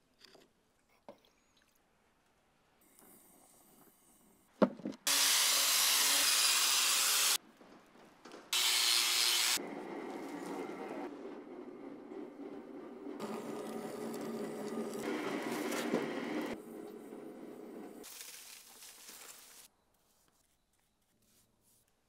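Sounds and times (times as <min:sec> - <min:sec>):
angle grinder grinding metal: 0:05.1 - 0:07.4, 0:08.6 - 0:09.6.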